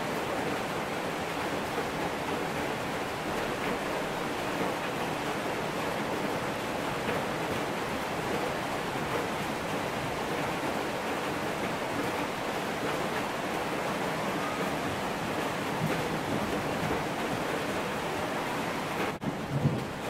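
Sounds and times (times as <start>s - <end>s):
steady rain falling: 0.0s - 20.0s.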